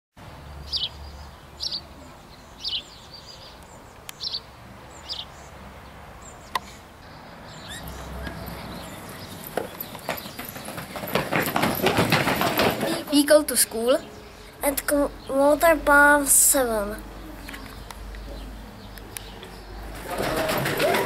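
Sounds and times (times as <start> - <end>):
children running footsteps: 7.8 - 14.1, 19.4 - 21.0.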